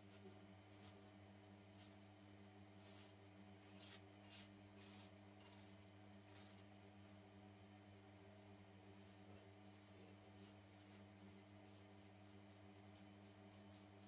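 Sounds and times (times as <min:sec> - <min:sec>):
spatula stirring dry crystals: 0:00.0 - 0:01.0, 0:01.8 - 0:02.1, 0:02.8 - 0:07.2.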